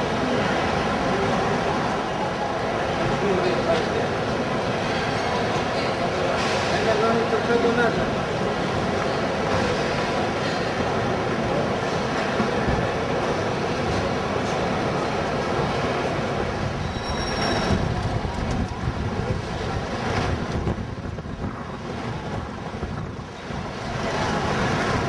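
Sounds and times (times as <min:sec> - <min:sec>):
station hall hum: 0:00.0 - 0:25.0
traffic passing on street: 0:00.0 - 0:25.0.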